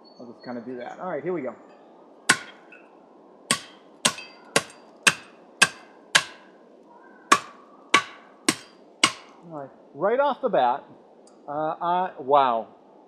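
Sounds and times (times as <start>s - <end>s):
shovel blade chopping branches: 2.3s - 2.7s, 3.5s - 6.5s, 7.3s - 9.4s.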